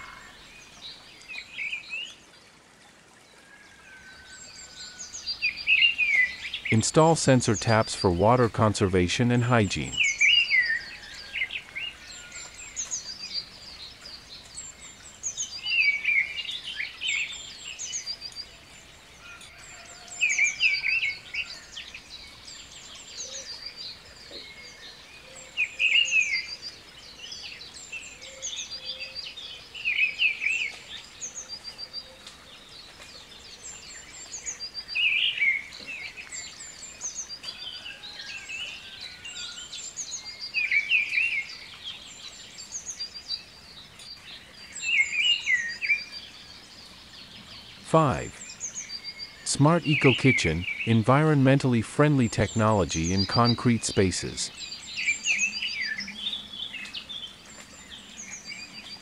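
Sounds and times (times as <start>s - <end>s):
birds chirping: 0.0s - 2.7s, 3.6s - 59.0s
faint steady hiss: 0.0s - 10.5s
loud warbled bird phrase: 47.8s - 48.4s, 49.4s - 54.6s.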